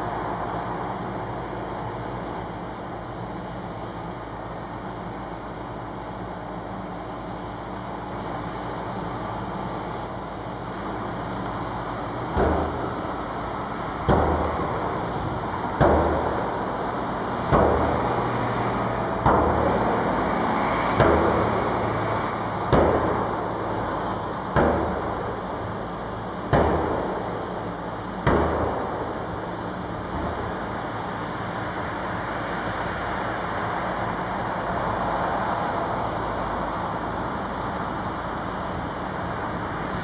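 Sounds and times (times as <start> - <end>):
road construction machinery: 0.0 - 40.0
heavy pounding strikes ringing: 12.3 - 30.6.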